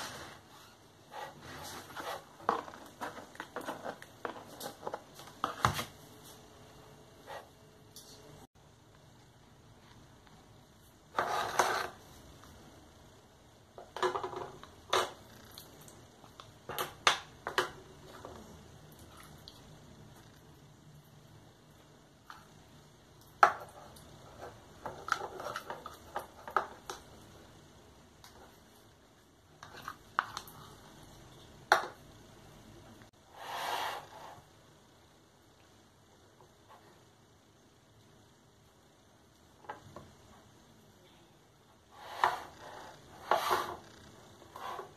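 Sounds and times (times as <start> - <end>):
plastic spoon scraping in cup: 42.0 - 43.9.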